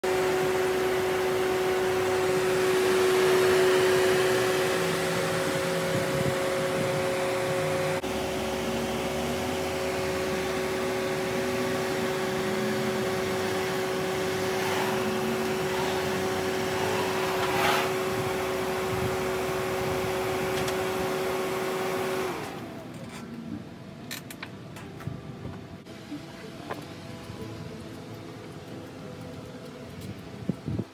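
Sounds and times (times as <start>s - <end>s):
motor whining hum: 0.0s - 23.7s.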